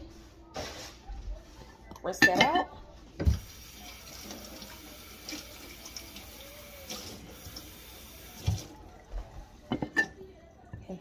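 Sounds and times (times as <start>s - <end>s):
tap water running into sink: 3.2s - 9.0s.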